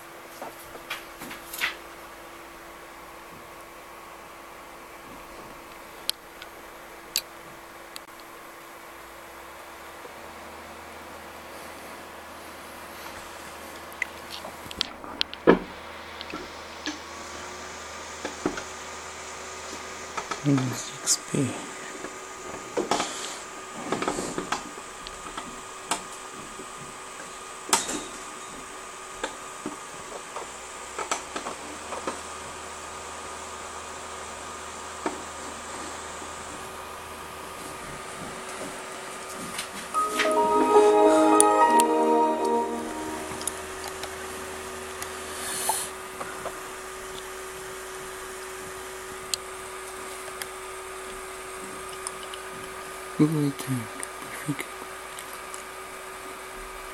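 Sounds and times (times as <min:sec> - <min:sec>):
steady hum with constant tone: 0:00.0 - 0:56.9
faint hum: 0:01.9 - 0:30.2
thin constant tones: 0:40.0 - 0:44.8.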